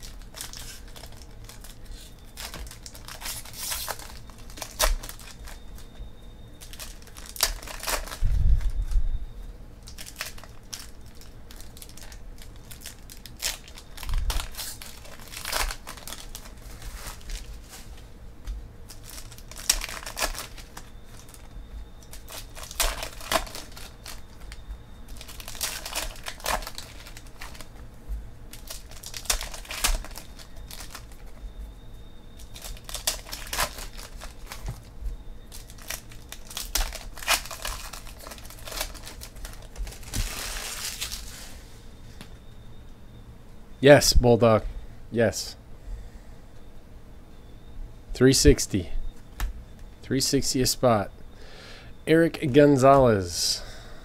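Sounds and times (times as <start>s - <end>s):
cards being flipped through: 0.0s - 5.6s
foil wrappers crinkling and tearing: 0.0s - 9.0s, 9.8s - 18.2s, 18.8s - 27.9s, 28.5s - 31.4s, 32.4s - 41.7s.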